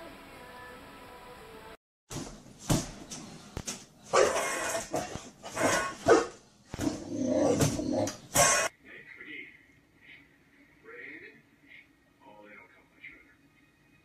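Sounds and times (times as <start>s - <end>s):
faint music: 0.0s - 1.8s, 8.7s - 14.0s
dog barking: 4.1s - 6.4s.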